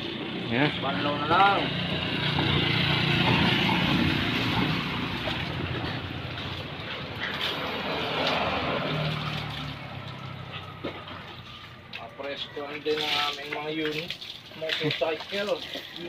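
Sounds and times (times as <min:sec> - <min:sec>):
vehicle engine passing by: 0:00.0 - 0:12.1.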